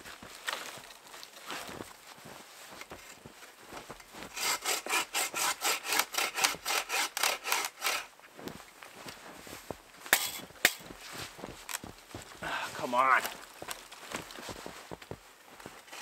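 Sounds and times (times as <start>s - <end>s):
wood rasping on wood: 4.3s - 8.1s.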